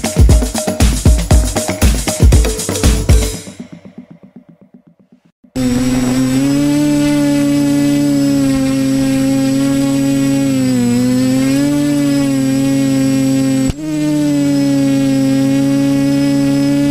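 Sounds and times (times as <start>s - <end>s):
drone motors humming: 5.6s - 16.9s.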